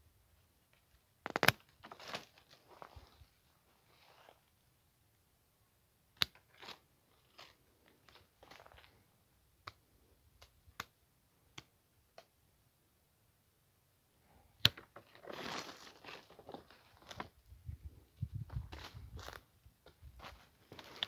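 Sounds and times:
twigs and leaves rustling: 0.7 - 4.5, 6.3 - 9.0, 14.6 - 21.0.

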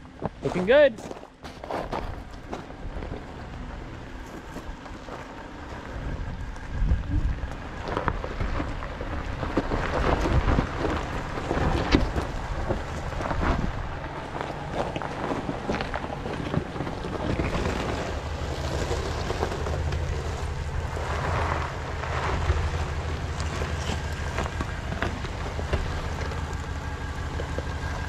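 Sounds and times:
car engine running: 1.9 - 28.0
wind buffeting microphone: 5.9 - 28.0.

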